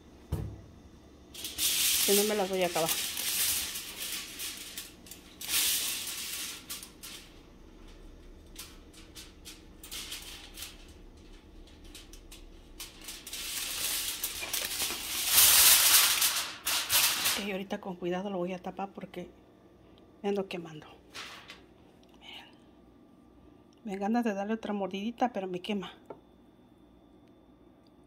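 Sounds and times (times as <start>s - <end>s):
aluminium foil crinkling: 1.3s - 17.7s, 21.1s - 21.7s.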